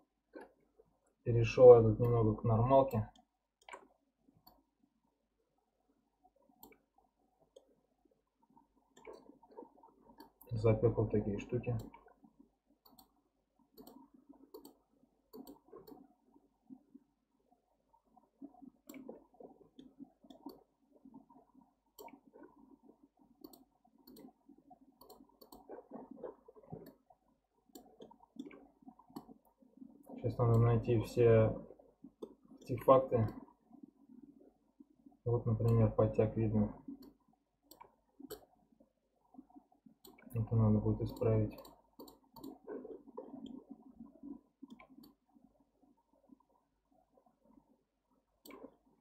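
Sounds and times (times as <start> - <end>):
computer mouse clicks: 2.9 - 4.6, 6.6 - 6.9, 8.9 - 10.6, 11.6 - 12.2, 12.8 - 16.1, 18.8 - 20.6, 21.9 - 22.6, 23.4 - 24.4, 25.0 - 27.1, 27.7 - 29.5, 30.4 - 30.8, 35.6 - 35.9, 36.9 - 38.5, 40.0 - 43.6, 44.6 - 45.2, 48.4 - 48.8.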